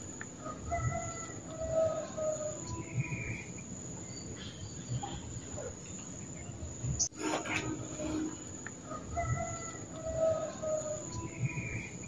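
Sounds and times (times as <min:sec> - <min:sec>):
whistled bird notes: 0:06.4 - 0:12.0
rasping note: 0:07.1 - 0:08.7.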